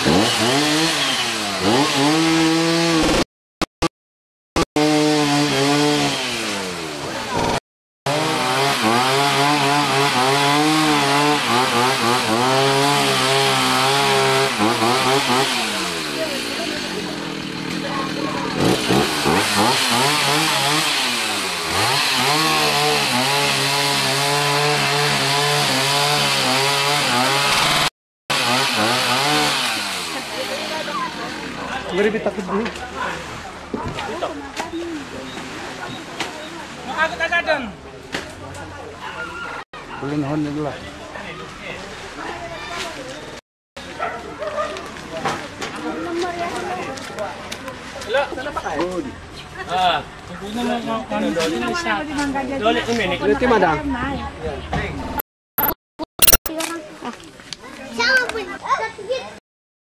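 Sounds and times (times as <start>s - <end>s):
small engine revving: 0.0s - 3.2s, 4.8s - 31.9s.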